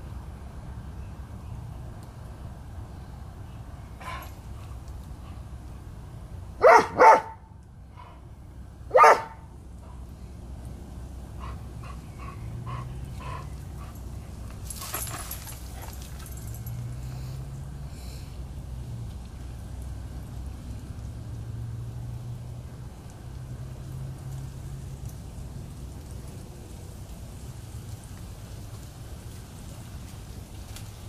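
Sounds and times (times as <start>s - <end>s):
dog barking: 6.6s - 7.5s, 8.9s - 9.5s.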